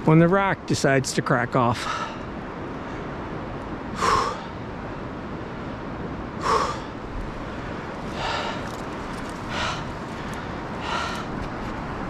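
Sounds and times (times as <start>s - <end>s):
man breathing hard: 1.8s - 2.3s, 3.9s - 4.6s, 6.4s - 7.1s, 8.0s - 11.5s
background hiss: 5.7s - 12.0s.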